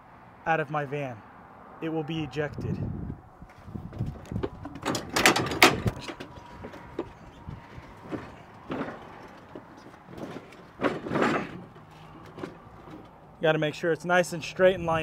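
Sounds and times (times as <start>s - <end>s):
metal cart clattering and rattling: 4.0s - 13.2s.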